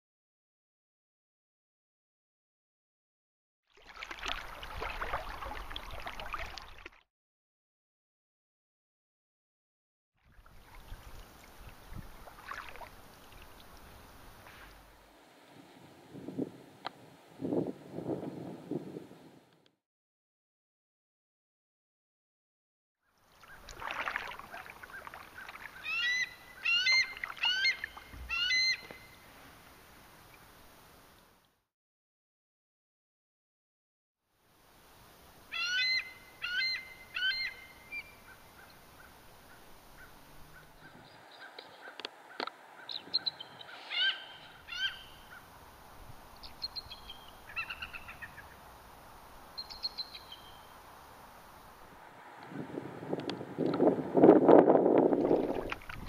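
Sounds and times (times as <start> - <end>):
eagles chittering: 25.4 - 29.1, 35.5 - 45.5, 46.6 - 48.6
eagle high rising chirps: 25.8 - 29.2, 42.9 - 45.4.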